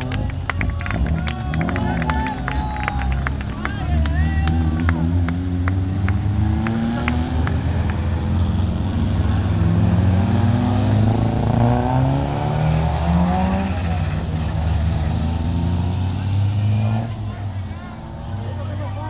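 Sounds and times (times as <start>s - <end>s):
sharp claps: 0.0s - 8.7s
race car engines revving: 0.0s - 19.0s.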